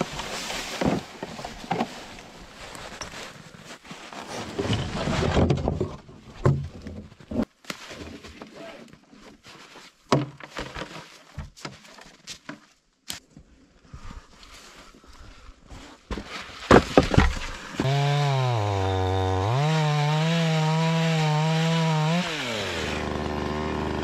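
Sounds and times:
plastic sled scraping over snow: 0:00.0 - 0:12.0
logs knocking and thudding: 0:04.5 - 0:08.5, 0:10.0 - 0:12.7, 0:16.1 - 0:18.2.

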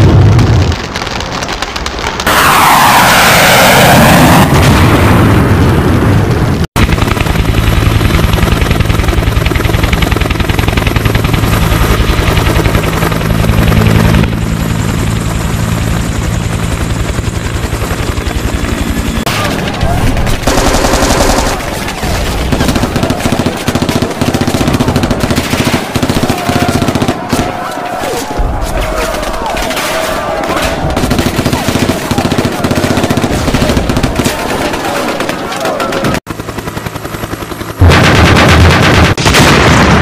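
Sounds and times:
helicopter rotor beating: 0:06.5 - 0:29.5, 0:30.2 - 0:39.2
machine-gun fire: 0:17.7 - 0:27.9, 0:28.9 - 0:36.2, 0:37.7 - 0:40.0.

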